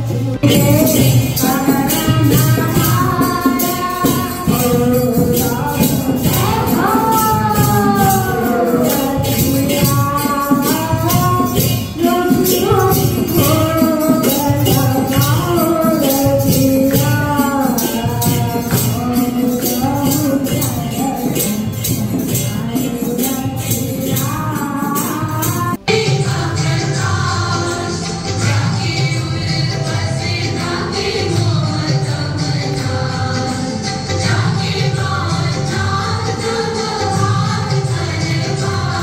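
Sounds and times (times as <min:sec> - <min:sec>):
person singing a melody: 0:00.0 - 0:33.5
jingling percussion beat: 0:00.0 - 0:39.0.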